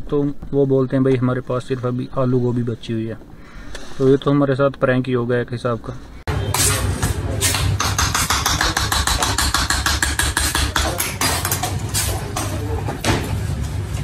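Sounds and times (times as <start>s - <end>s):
knife chopping on marble: 7.4s - 11.8s.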